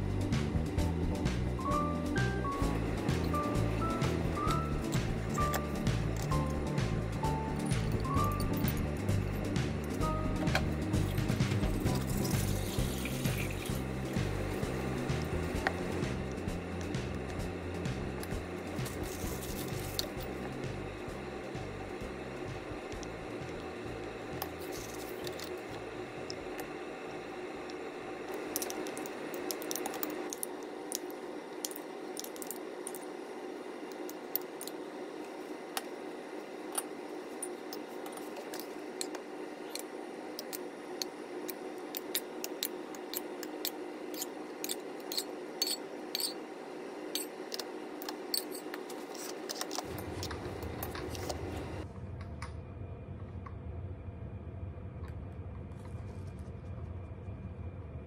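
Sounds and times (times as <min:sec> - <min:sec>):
low steady hum: 0:00.0 - 0:58.0
spoon clinking against glass jars: 0:44.6 - 0:46.4.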